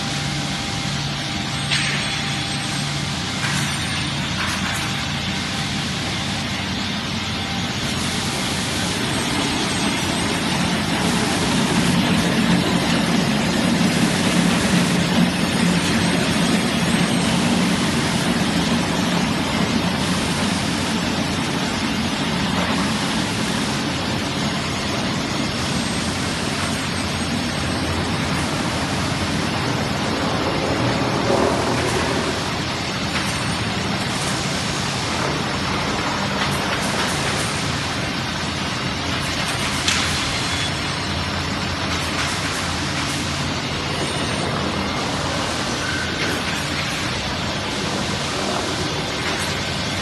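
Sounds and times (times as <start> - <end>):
sanding machine running: 5.7 - 39.0.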